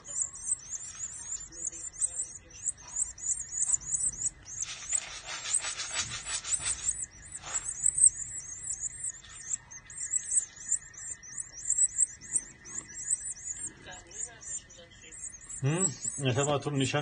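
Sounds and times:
nestlings cheeping rapidly: 0.0 - 17.0
scratchy rubbing noise: 3.6 - 8.2.

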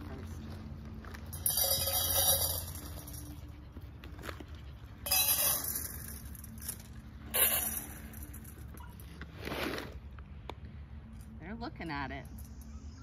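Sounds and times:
dry kibble poured into metal bowls: 1.3 - 3.2.

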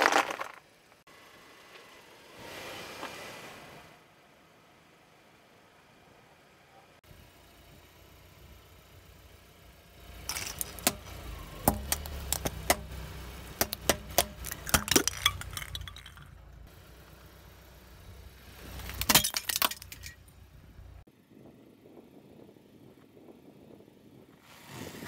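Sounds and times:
plastic pieces clattering on asphalt: 0.0 - 1.0, 10.2 - 12.8, 13.6 - 16.6, 18.7 - 20.3
plastic bulbs cracking and popping: 10.3 - 12.9, 13.6 - 16.3.

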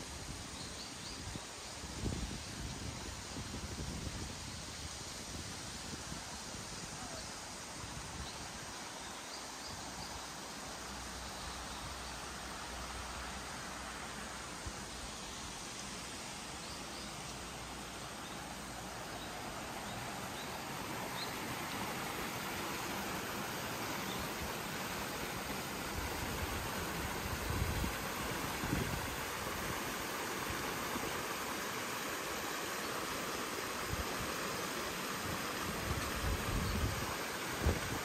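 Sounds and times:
river water rushing: 10.5 - 38.0.

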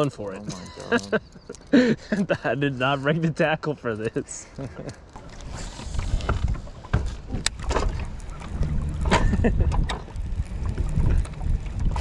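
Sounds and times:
wind rumbling on microphone: 4.8 - 12.0.

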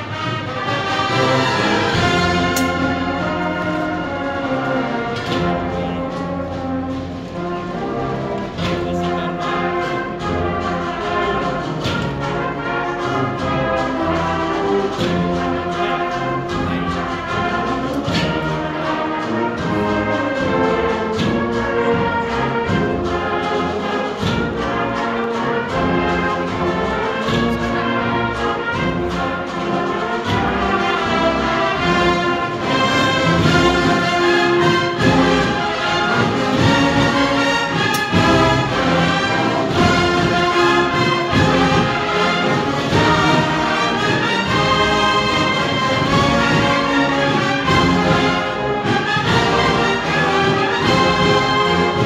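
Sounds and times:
brass instruments playing march: 0.0 - 52.0
steady drum beat: 0.0 - 52.0.

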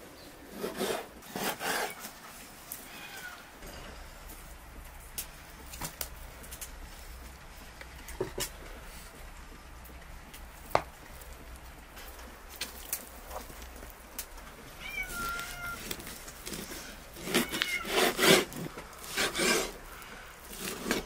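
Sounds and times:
cat meowing: 2.8 - 3.5, 14.8 - 16.0, 17.2 - 18.0.

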